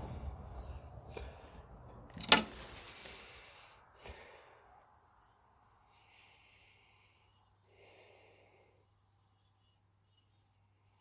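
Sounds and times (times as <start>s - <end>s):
scraping: 0.0s - 3.2s.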